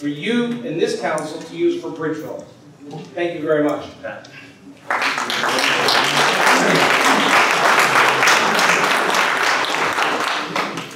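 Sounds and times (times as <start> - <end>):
people applauding: 4.8 - 10.9.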